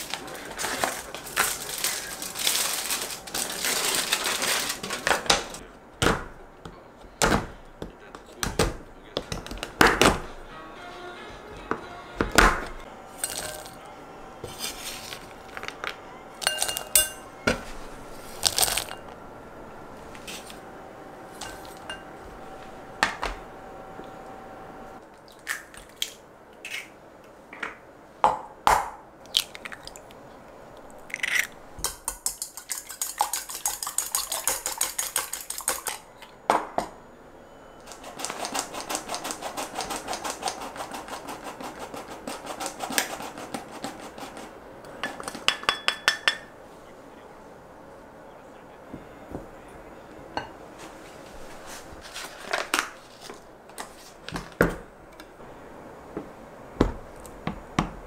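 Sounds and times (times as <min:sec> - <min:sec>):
glass bowls and utensils clinking: 0:13.2 - 0:13.8, 0:16.4 - 0:17.5, 0:18.5 - 0:19.2, 0:21.4 - 0:22.1, 0:45.0 - 0:46.5.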